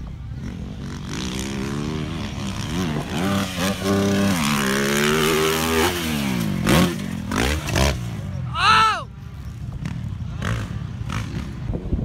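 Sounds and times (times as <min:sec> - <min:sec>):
dirt bike engine revving: 0:00.2 - 0:08.4, 0:09.8 - 0:11.9.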